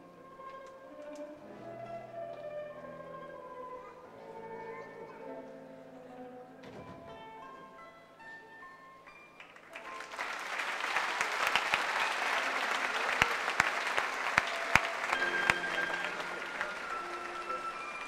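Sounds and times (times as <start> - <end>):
quiet music of held notes: 0.0 - 10.8, 12.2 - 18.0
audience applause: 9.4 - 18.0.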